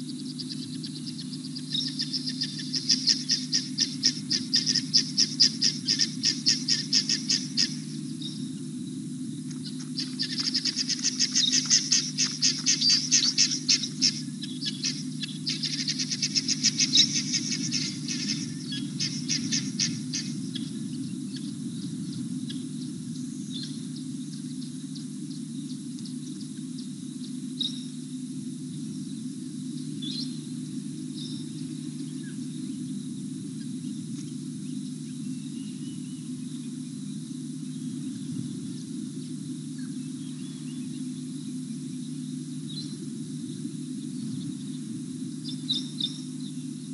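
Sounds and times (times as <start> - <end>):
bird chirping trills: 0.0 - 8.6, 9.5 - 26.5, 39.8 - 46.9
steady low hum: 0.0 - 46.9.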